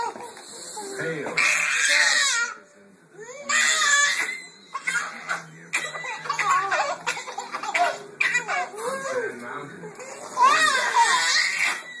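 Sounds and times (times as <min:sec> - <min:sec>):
toddlers laughing: 0:03.5 - 0:09.2, 0:10.0 - 0:12.0.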